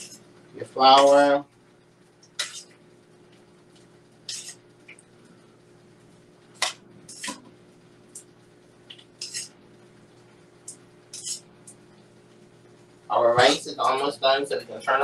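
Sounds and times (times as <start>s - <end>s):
faint steady hum: 0.0s - 15.0s
fork clinking against a bowl: 2.4s - 2.7s, 9.2s - 9.6s, 11.1s - 11.4s.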